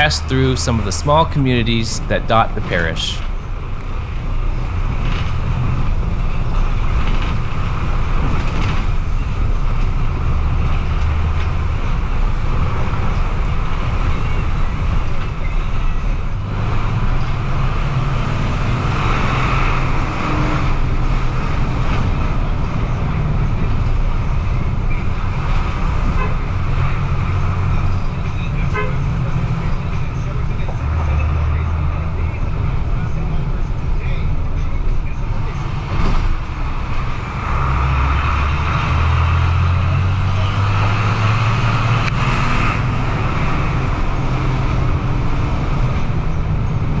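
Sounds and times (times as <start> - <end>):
bus engine rumble: 0.0 - 47.0
tyre and road noise: 0.0 - 47.0.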